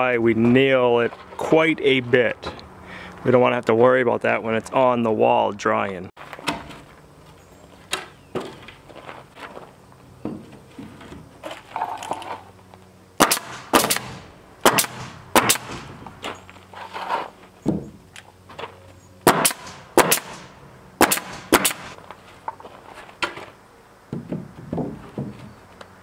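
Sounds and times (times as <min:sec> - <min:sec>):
nail gun firing into wood: 0:13.2 - 0:16.0, 0:19.3 - 0:22.0
wooden boards knocking: 0:24.1 - 0:25.7.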